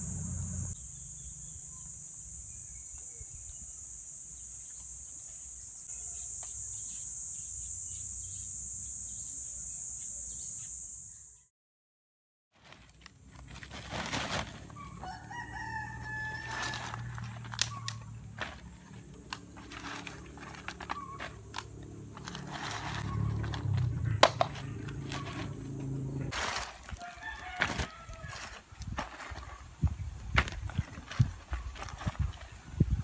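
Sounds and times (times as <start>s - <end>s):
low steady hum: 0.0s - 0.8s
rooster crowing: 14.8s - 17.8s, 26.9s - 28.6s
coconut shells knocking: 24.2s - 24.8s.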